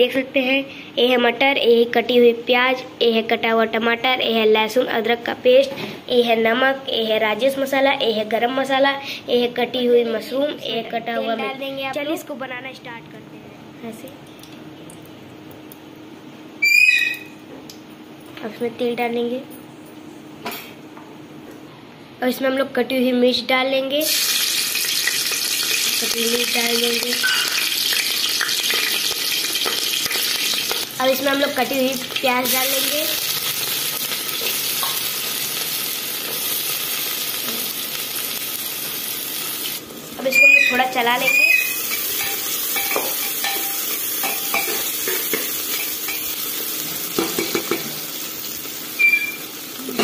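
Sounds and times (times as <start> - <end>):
brief high squeak: 16.6 - 17.4, 40.3 - 40.8, 49.0 - 49.4
chillies sizzling in hot oil: 24.0 - 50.0.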